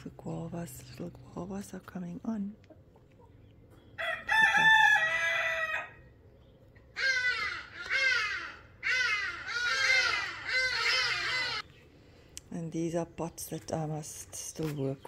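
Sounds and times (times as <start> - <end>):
rooster crowing: 4.0 - 6.1
short falling bird calls: 6.9 - 11.9.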